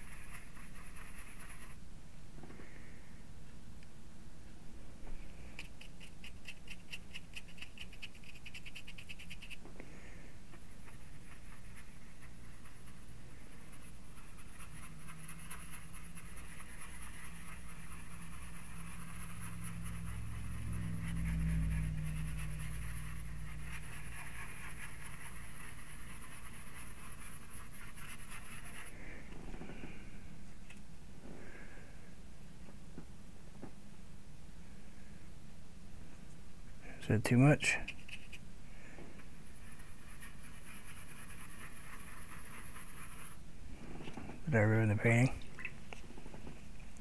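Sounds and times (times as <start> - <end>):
paintbrush scrubbing on hardboard: 0.0 - 1.8, 5.6 - 9.6, 10.5 - 30.0, 37.6 - 38.5, 39.2 - 43.4.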